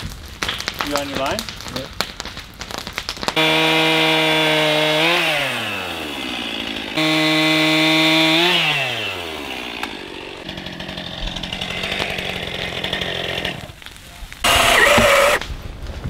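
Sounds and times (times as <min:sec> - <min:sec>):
chainsaw cutting log: 0:03.4 - 0:13.8, 0:14.4 - 0:15.4.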